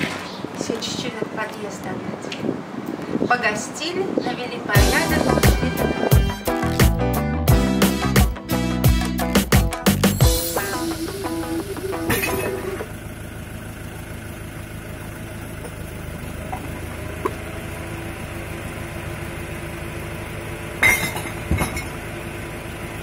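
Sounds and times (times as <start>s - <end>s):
traffic hum: 0.0s - 7.2s
music: 4.8s - 12.9s
glass bottles clinking in bin: 12.1s - 12.8s, 20.8s - 22.0s.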